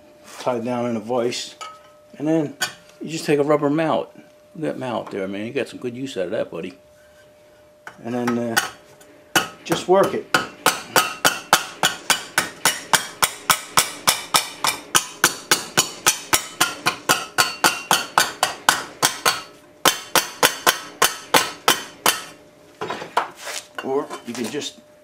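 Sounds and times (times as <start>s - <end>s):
rubber mallet striking sheet metal: 9.4s - 22.4s.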